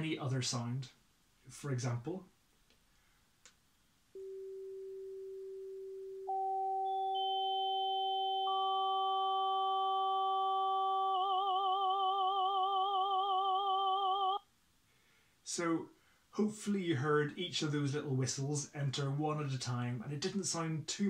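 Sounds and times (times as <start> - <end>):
synthesised sine tones chord: 4.2 - 14.4.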